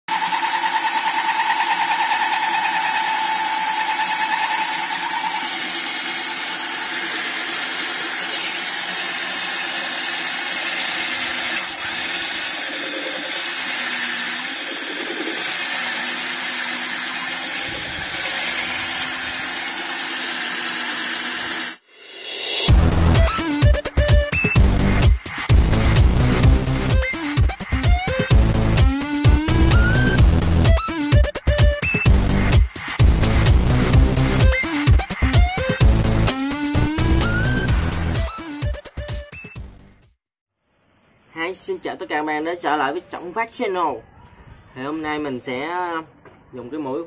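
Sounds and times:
cordless drill cutting glass: 0:00.1 - 0:21.8, 0:27.9 - 0:31.0.

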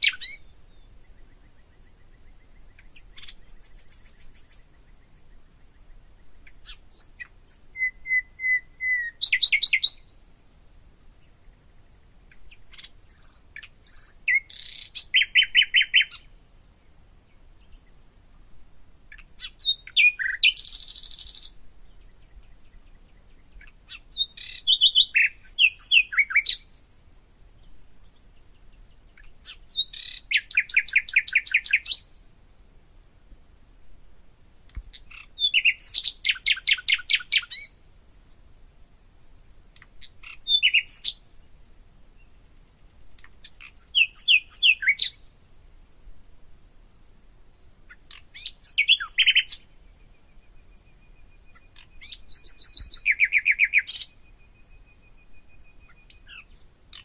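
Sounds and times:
songbird trilling and whistling: 0:00.0 - 0:10.2, 0:12.3 - 0:16.3, 0:18.5 - 0:26.8, 0:29.1 - 0:32.1, 0:34.9 - 0:37.8, 0:39.8 - 0:41.3, 0:43.4 - 0:45.3, 0:47.2 - 0:57.0.

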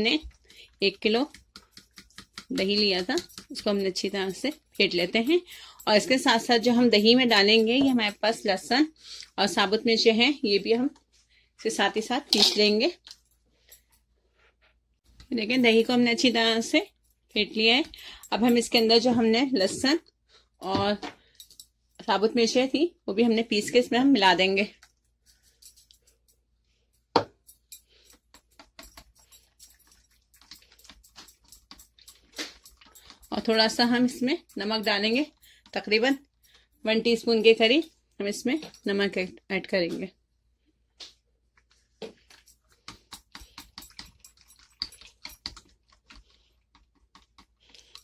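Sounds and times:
whisk clicking against glass bowl: 0:01.1 - 0:08.7.

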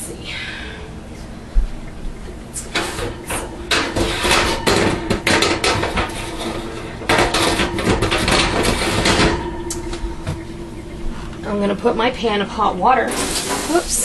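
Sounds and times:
metal pan clattering in sink: 0:02.7 - 0:10.9, 0:13.1 - 0:14.0.

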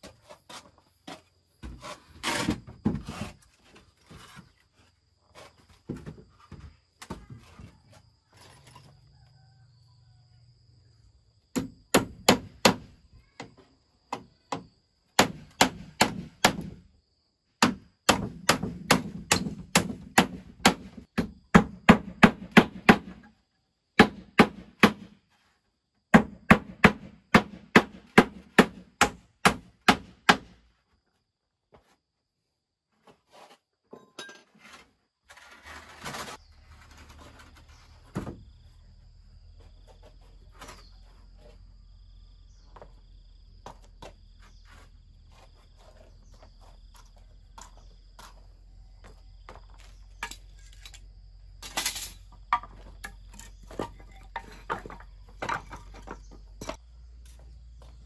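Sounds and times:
rapid chopping on wood: 0:15.2 - 0:16.8, 0:17.6 - 0:23.2, 0:26.1 - 0:30.6
knocks and clatter: 0:51.6 - 0:56.8.

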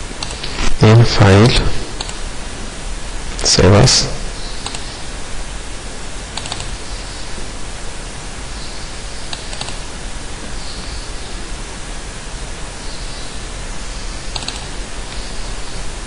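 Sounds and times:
microphone hiss: 0:00.0 - 0:16.0
computer mouse double-clicks: 0:04.6 - 0:04.9, 0:06.4 - 0:06.7, 0:09.3 - 0:09.8, 0:14.3 - 0:14.7.

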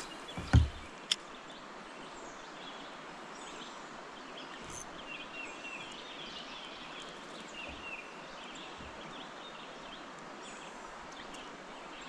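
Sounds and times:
birds chirping and trilling: 0:00.0 - 0:01.1
low outdoor hiss: 0:00.0 - 0:12.0.

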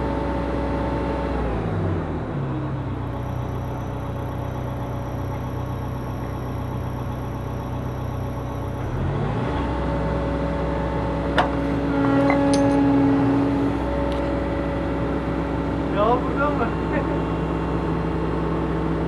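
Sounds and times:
excavator diesel engine running: 0:00.0 - 0:19.0
hydraulic movements: 0:11.4 - 0:13.1.

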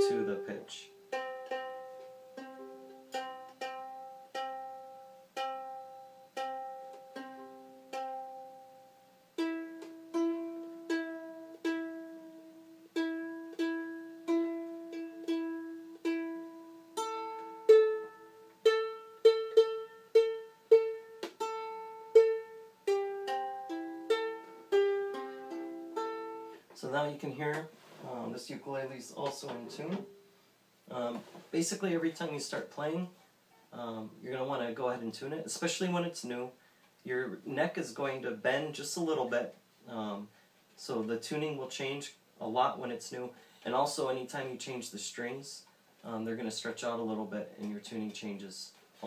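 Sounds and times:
ukulele strings plucked: 0:00.0 - 0:26.6.

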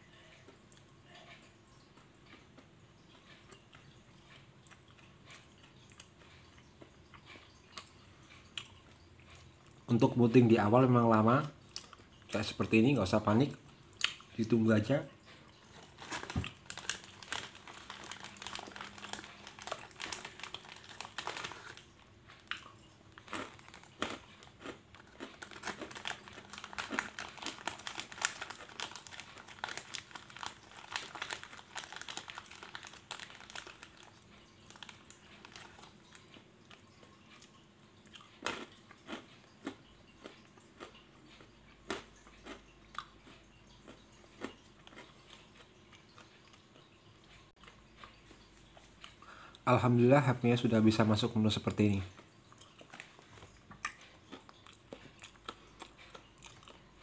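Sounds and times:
clicks and crackles: 0:15.8 - 0:37.6.

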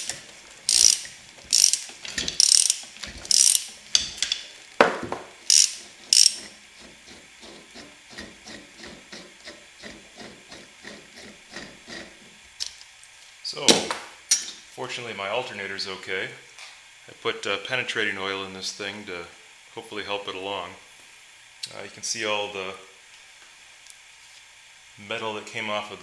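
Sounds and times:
ratchet wrench clicking: 0:00.0 - 0:04.6, 0:05.4 - 0:06.6.

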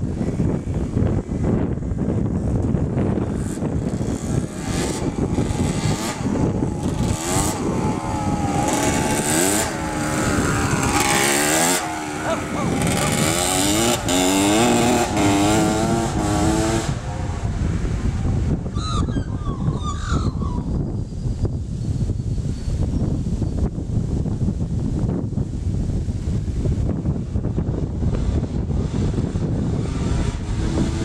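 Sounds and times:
dirt bike riding past: 0:02.9 - 0:18.7.

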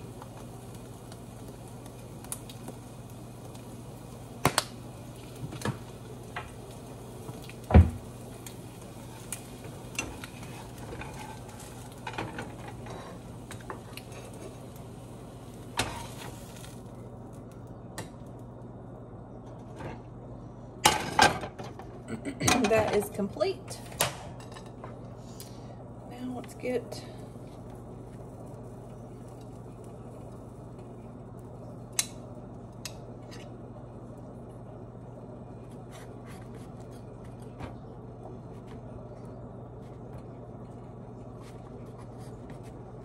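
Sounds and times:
eggs sizzling in a pan: 0:00.0 - 0:18.7, 0:22.6 - 0:37.4
steady low hum: 0:00.0 - 0:43.0.

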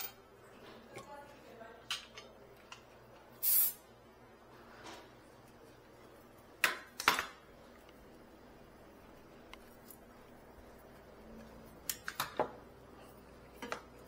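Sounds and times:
gas hissing from hose fitting: 0:03.4 - 0:03.8.

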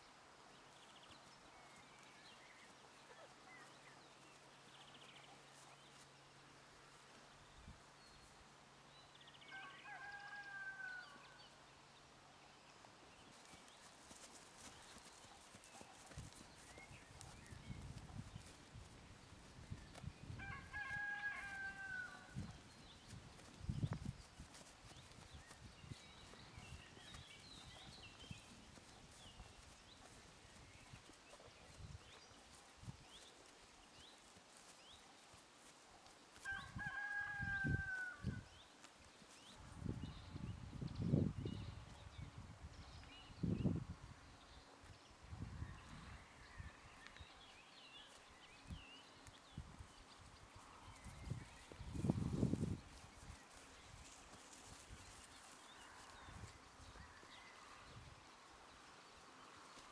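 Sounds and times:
hooves walking on grass: 0:00.0 - 0:59.9
distant rooster crowing: 0:09.4 - 0:11.4, 0:20.4 - 0:22.5, 0:36.4 - 0:38.4
small birds chirping: 0:12.7 - 0:20.3, 0:22.4 - 0:36.4.

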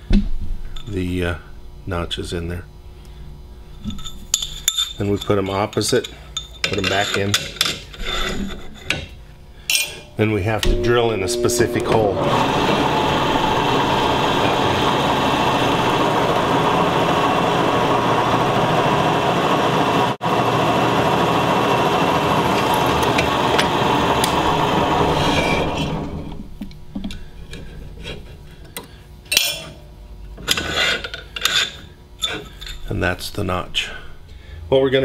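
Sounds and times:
drill press grinding through steel: 0:10.7 - 0:26.5.

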